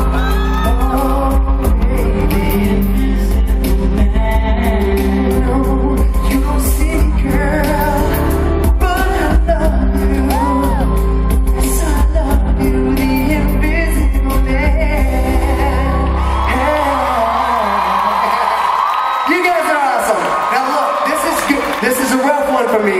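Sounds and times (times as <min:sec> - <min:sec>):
crowd cheering and whooping: 0:00.0 - 0:01.4, 0:10.0 - 0:11.5, 0:15.4 - 0:22.9
man singing ballad with band: 0:00.0 - 0:18.8.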